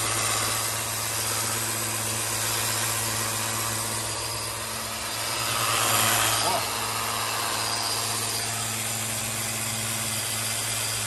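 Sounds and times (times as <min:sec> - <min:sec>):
high-pressure water jet hissing: 0:00.0 - 0:11.0
pressure washer pump humming: 0:00.0 - 0:11.0.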